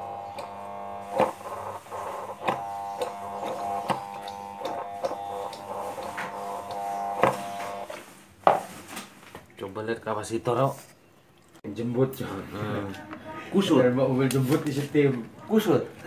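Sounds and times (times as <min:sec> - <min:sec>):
electric motor humming: 0:00.0 - 0:08.0.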